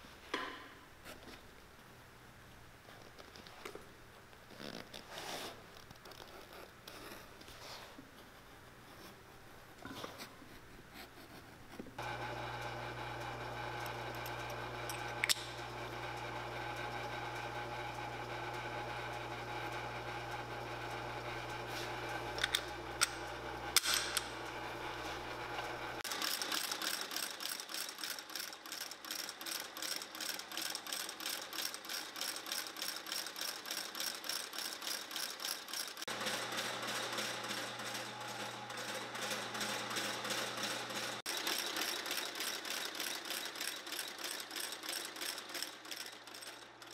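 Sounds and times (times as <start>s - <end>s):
steady motor hum: 12.0s - 26.2s, 36.1s - 41.4s
stitching machine rhythmic clatter: 26.1s - 46.9s.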